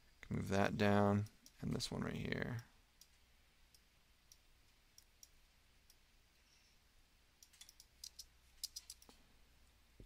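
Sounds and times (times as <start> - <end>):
computer mouse clicks: 7.4 - 9.2.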